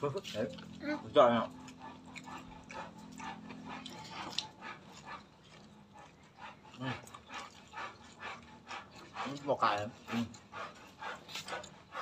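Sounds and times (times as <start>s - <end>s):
crunching raw vegetables: 0.0s - 12.0s
lip smacks: 1.5s - 9.5s.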